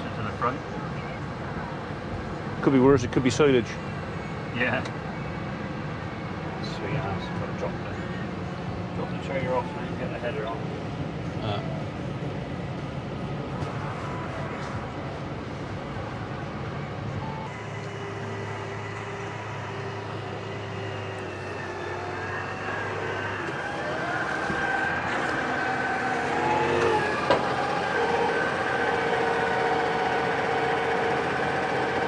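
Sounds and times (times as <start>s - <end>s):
tractor engine running: 17.5s - 32.0s.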